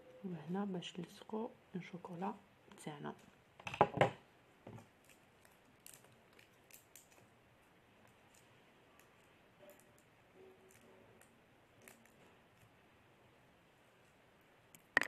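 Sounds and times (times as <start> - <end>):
cellophane crinkling: 4.8 - 7.3.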